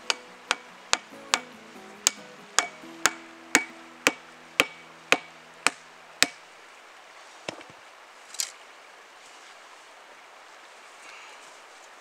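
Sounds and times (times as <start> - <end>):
hand tool chopping wood: 0.0 - 6.4.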